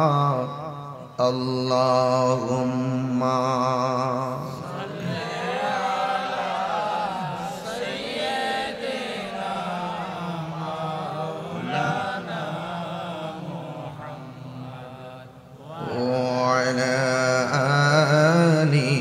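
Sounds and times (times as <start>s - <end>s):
crowd chanting over loudspeaker: 4.2s - 17.2s.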